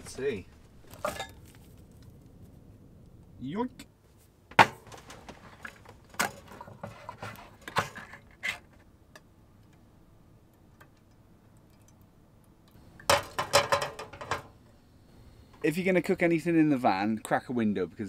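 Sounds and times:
saucepan clattering on hob: 13.1s - 14.5s.

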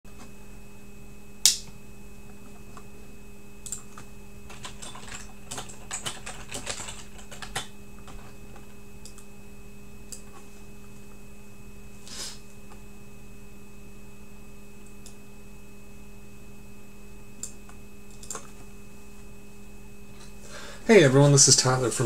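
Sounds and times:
steady electrical hum: 0.1s - 22.0s.

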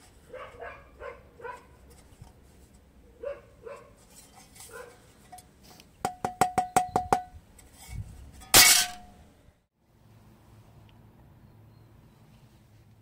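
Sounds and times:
dog barking: 0.3s - 1.8s, 3.2s - 4.0s, 4.7s - 5.0s
metal plate tapped: 6.0s - 7.4s.

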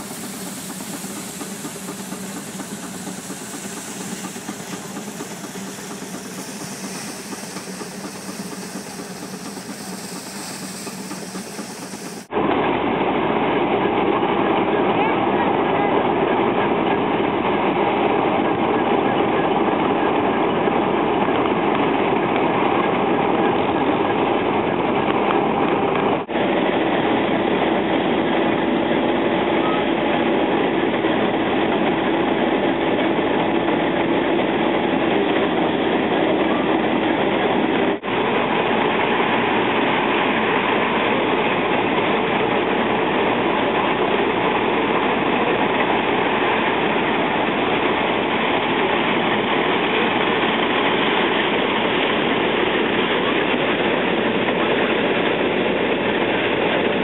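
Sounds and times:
blower humming: 0.0s - 12.3s
threshing machine clattering: 0.0s - 12.3s.

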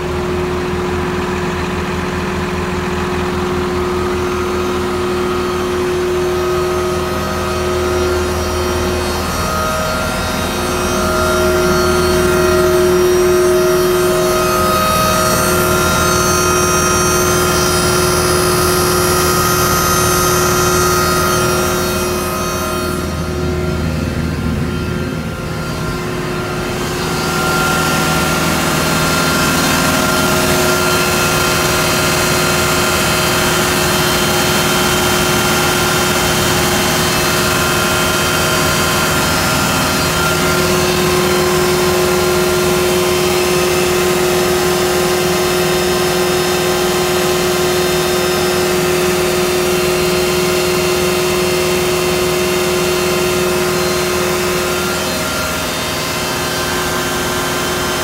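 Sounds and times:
truck machinery drone: 0.0s - 58.0s.

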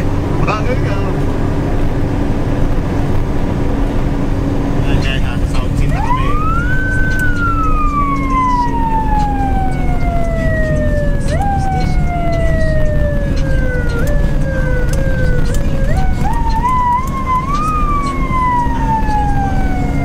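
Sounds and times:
road and engine rumble: 0.0s - 20.0s
ambulance siren wailing: 4.9s - 20.0s.

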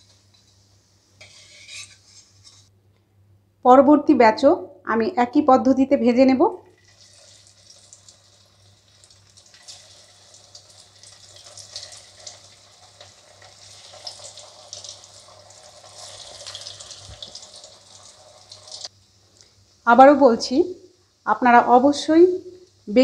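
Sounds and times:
deep-frying sizzle with crackles: 0.0s - 2.7s, 6.7s - 18.9s.

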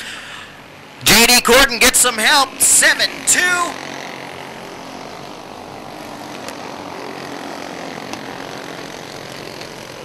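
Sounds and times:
kart engines buzzing: 0.0s - 10.0s.

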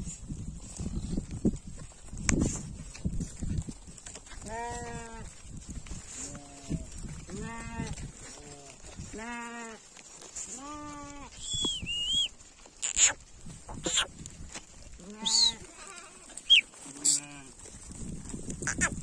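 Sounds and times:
sheep bleating: 4.4s - 5.3s, 6.1s - 9.8s, 10.5s - 11.4s, 15.0s - 17.6s
high wavering whistle: 11.4s - 12.3s, 16.4s - 16.7s.

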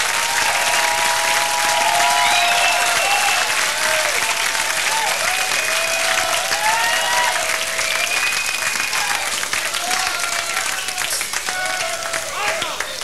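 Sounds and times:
audience applauding: 0.0s - 13.0s
whoops and whistles: 0.7s - 3.5s, 6.6s - 9.2s.

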